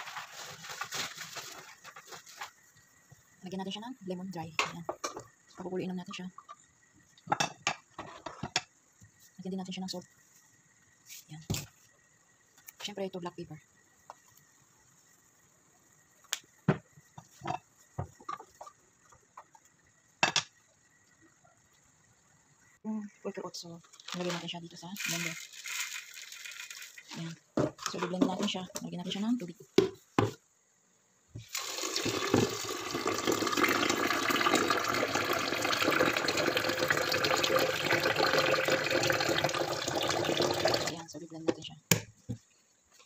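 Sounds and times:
tap water pouring into plastic jar: 25.0s - 27.0s, 31.4s - 41.0s.

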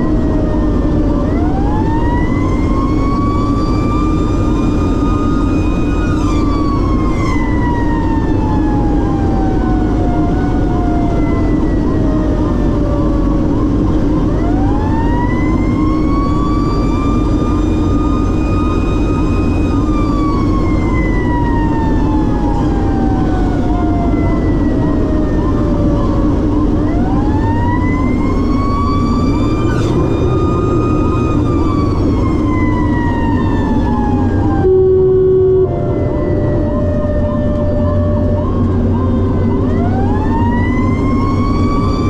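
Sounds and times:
engine and road drone: 0.0s - 42.0s
fire engine siren wailing: 0.0s - 42.0s.

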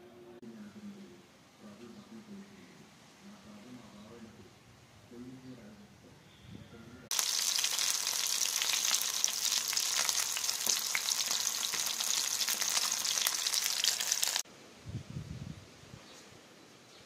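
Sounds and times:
fish sizzling in hot oil: 7.1s - 14.4s.

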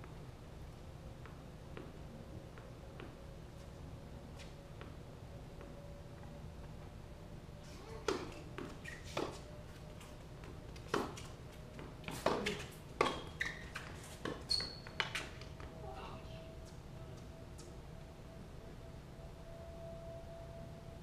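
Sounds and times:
tennis ball bouncing: 8.0s - 9.4s, 10.8s - 15.5s.

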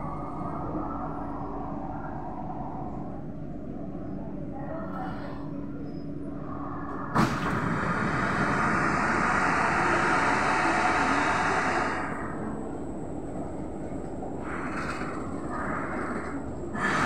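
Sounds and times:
train door hiss: 7.1s - 12.4s, 16.1s - 17.0s.

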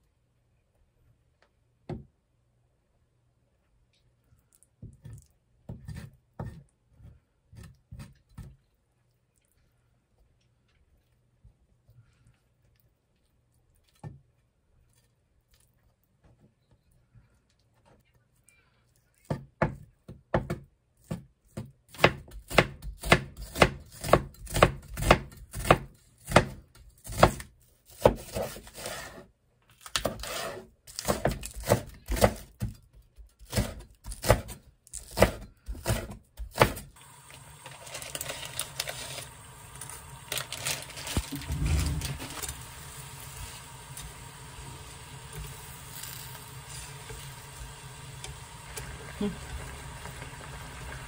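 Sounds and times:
knife chopping on wooden board: 19.3s - 29.0s, 30.0s - 32.8s, 33.4s - 36.9s
water boiling in a pan: 37.0s - 51.0s.

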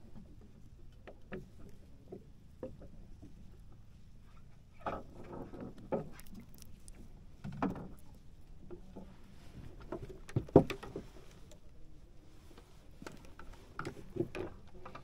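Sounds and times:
knocks and bumps on boat: 9.9s - 11.1s.

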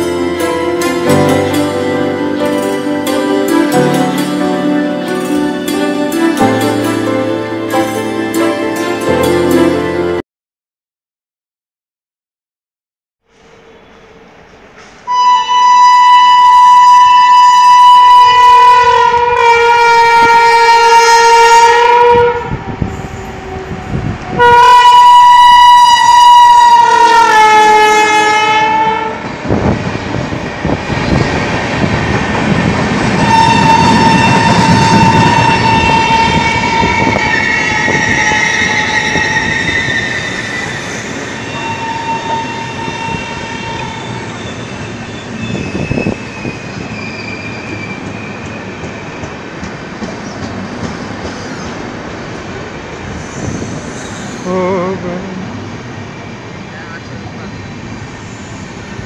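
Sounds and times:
train horn blast: 15.1s - 22.8s, 23.5s - 29.3s, 33.1s - 40.1s, 41.5s - 44.2s
train wheels rumbling: 16.4s - 59.0s.

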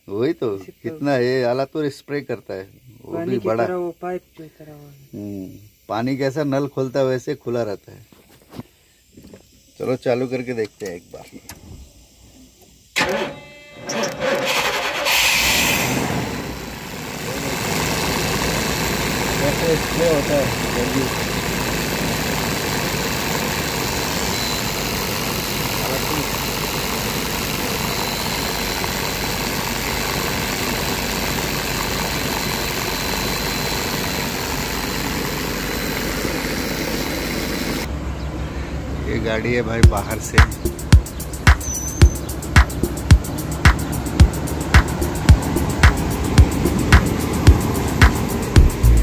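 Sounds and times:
starter motor cranking: 13.0s - 37.9s, 40.9s - 49.0s
engine running: 13.0s - 49.0s.

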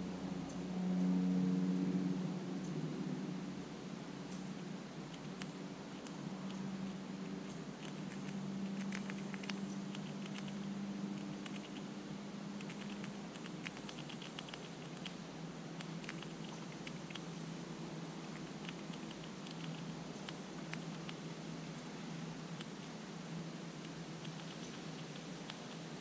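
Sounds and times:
steady low hum: 0.0s - 26.0s
light clicking and ticking: 7.4s - 10.6s.

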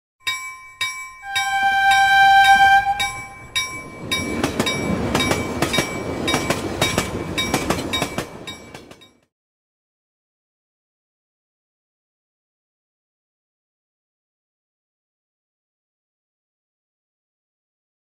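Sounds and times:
chiming bell-like tone: 0.2s - 8.8s
locomotive horn: 1.2s - 3.5s
train rumbling and clattering: 1.3s - 9.3s.

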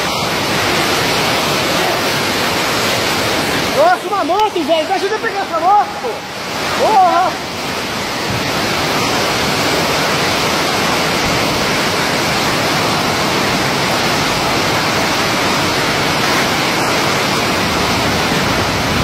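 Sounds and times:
floodwater rushing: 0.0s - 19.0s.

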